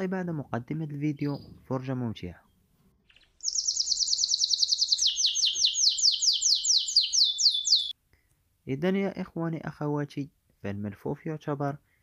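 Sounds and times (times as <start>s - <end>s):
songbird trilling and whistling: 3.1s - 8.0s.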